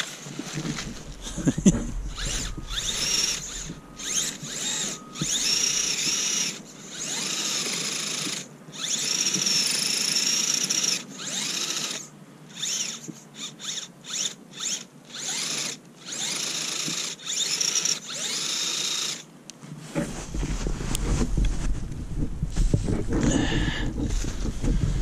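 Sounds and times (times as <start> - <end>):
electric motor whining: 0.0 - 19.2
low rumble: 0.5 - 6.8, 20.1 - 25.0.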